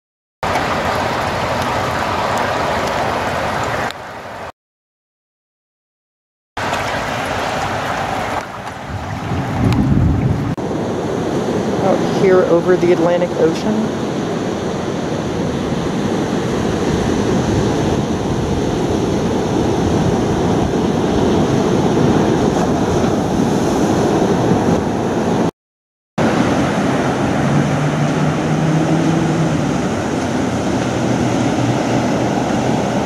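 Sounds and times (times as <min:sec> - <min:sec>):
ocean surf breaking: 0:00.4 - 0:04.5, 0:06.6 - 0:25.5, 0:26.2 - 0:33.0
wind buffeting microphone: 0:06.6 - 0:25.5.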